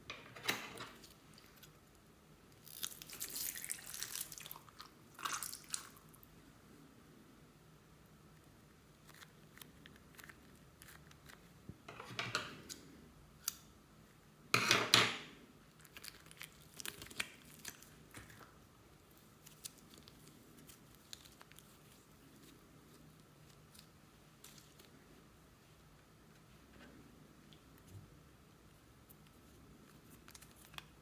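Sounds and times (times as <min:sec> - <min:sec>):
plastic wrapper crinkling: 0:15.7 - 0:25.0
plastic wrapper tearing: 0:15.8 - 0:18.5.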